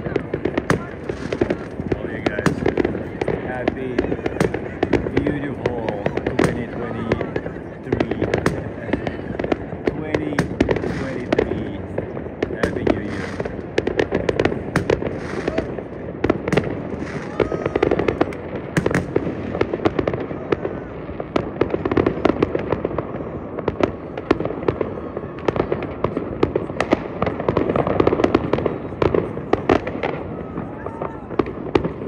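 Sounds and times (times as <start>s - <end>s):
fireworks and firecrackers banging: 0.0s - 32.0s.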